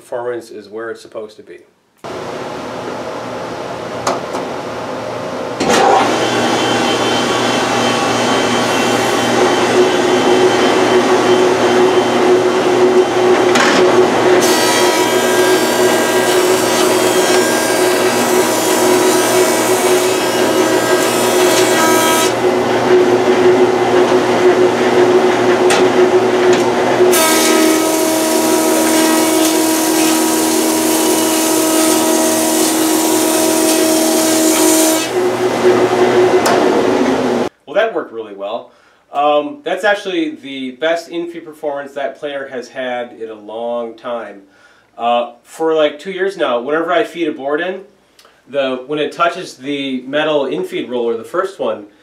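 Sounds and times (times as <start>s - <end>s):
planer cutting a board: 5.6s - 37.5s
dust collector running: 5.8s - 37.5s.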